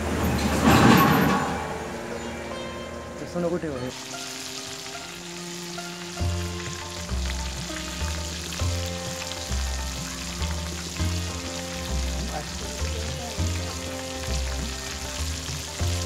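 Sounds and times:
fish deep-frying in oil: 0:03.9 - 0:16.0.

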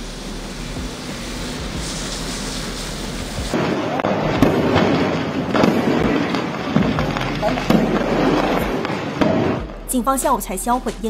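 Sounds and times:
water spraying hiss: 0:00.0 - 0:03.6
firecrackers crackling: 0:00.0 - 0:11.0
firework bangs: 0:00.0 - 0:11.0.

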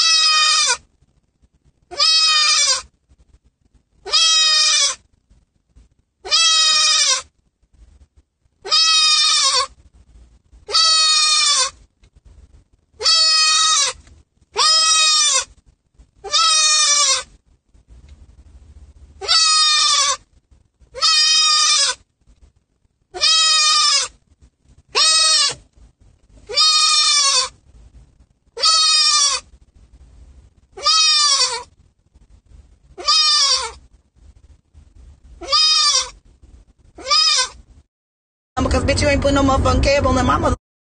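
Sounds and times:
goat bleating: 0:00.0 - 0:00.8, 0:01.9 - 0:02.9, 0:04.0 - 0:05.0, 0:06.2 - 0:07.3, 0:08.6 - 0:09.8, 0:10.7 - 0:11.8, 0:13.0 - 0:14.0, 0:14.6 - 0:15.5, 0:16.2 - 0:17.3, 0:19.2 - 0:20.2, 0:21.0 - 0:22.0, 0:23.2 - 0:24.2, 0:24.9 - 0:25.6, 0:26.5 - 0:27.6, 0:28.6 - 0:29.5, 0:30.8 - 0:31.7, 0:33.0 - 0:33.8, 0:35.4 - 0:36.2, 0:37.0 - 0:37.6.

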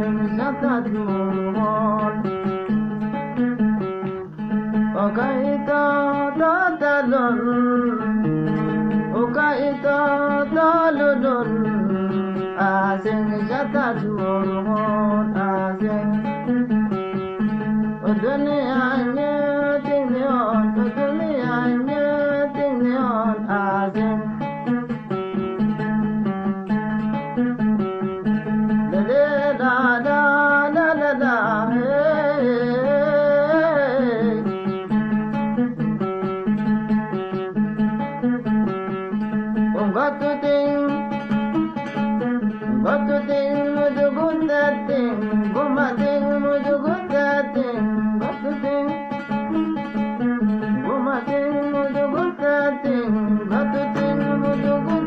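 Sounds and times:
man singing: 0:00.0 - 0:02.8, 0:04.9 - 0:16.5, 0:18.0 - 0:24.4, 0:28.9 - 0:34.8, 0:39.6 - 0:55.0
oud strings plucked: 0:00.0 - 0:55.0.

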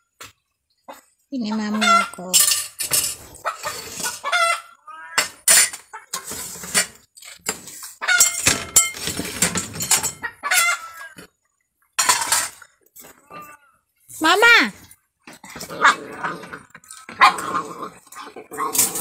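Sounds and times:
chickens clucking and squawking: 0:00.8 - 0:04.9, 0:05.7 - 0:06.8, 0:07.8 - 0:08.6, 0:10.0 - 0:11.5.

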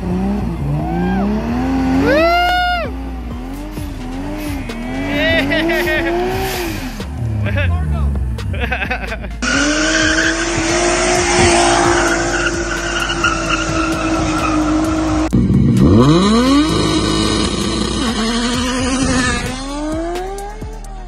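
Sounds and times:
car engine revving high: 0:00.0 - 0:08.6, 0:09.4 - 0:20.7
tyres squealing: 0:09.4 - 0:15.3.

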